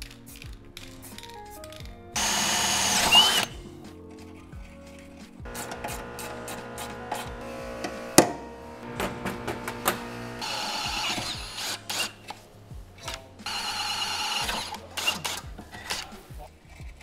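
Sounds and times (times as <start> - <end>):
cordless drill whining into metal: 2.2 - 3.6, 5.5 - 12.4, 13.5 - 16.0
sharp clicks and knocks: 5.5 - 10.2.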